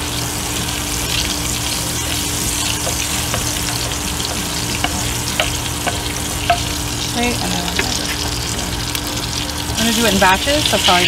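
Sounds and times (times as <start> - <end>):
lard sizzling in a pot: 0.0 - 11.0
wooden spoon clicking on pot: 2.8 - 6.7.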